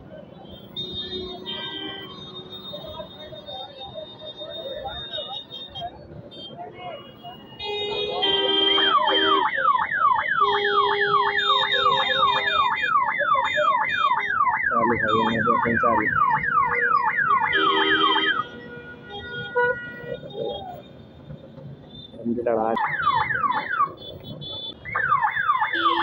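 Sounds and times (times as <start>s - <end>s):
siren yelping: 9.0s - 18.4s, 22.8s - 24.0s, 24.8s - 26.0s.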